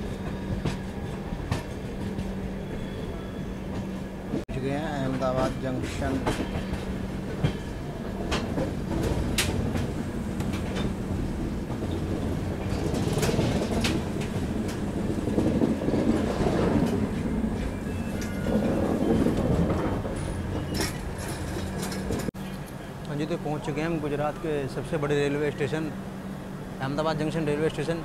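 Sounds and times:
train coaches rumbling: 0:00.0 - 0:28.0
wheels clacking over rail joints: 0:04.8 - 0:22.8.

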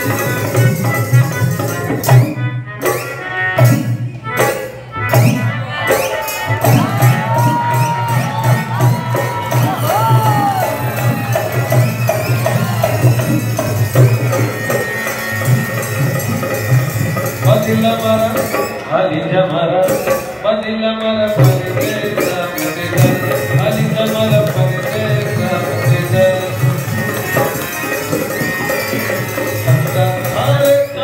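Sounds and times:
hand-drum beats: 0:00.0 - 0:19.0, 0:21.2 - 0:31.0.

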